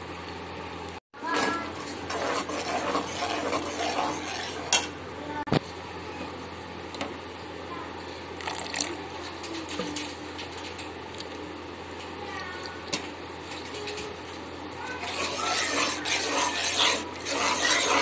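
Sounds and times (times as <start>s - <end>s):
metal spoon scraping a pot: 1.2s - 5.0s, 15.0s - 18.0s.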